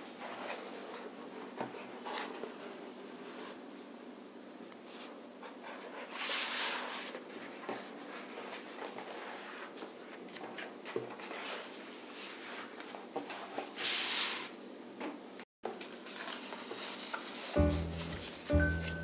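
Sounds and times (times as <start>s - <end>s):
paper handling: 15.8s - 19.0s
music: 17.6s - 19.0s.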